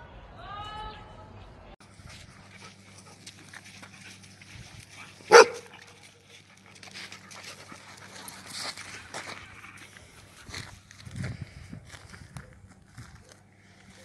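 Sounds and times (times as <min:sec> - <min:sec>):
dogs panting: 0:01.8 - 0:11.0
dog barking: 0:05.3 - 0:05.8.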